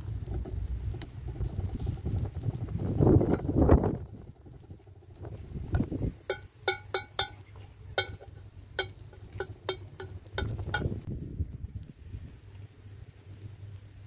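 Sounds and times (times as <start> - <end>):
metal tongs clinking on griddle: 6.2 - 11.0.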